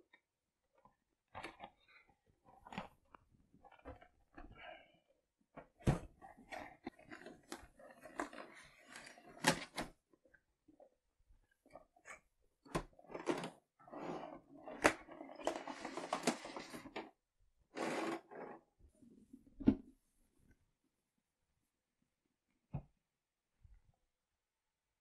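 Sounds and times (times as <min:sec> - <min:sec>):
rustling and scraping: 0:05.6 - 0:09.8, 0:12.8 - 0:17.2.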